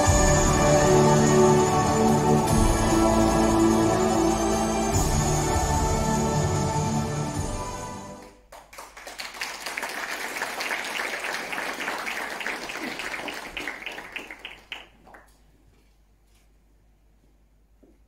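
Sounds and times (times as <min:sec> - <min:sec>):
background music: 0:00.0 - 0:08.4
audience applauding: 0:08.2 - 0:15.4.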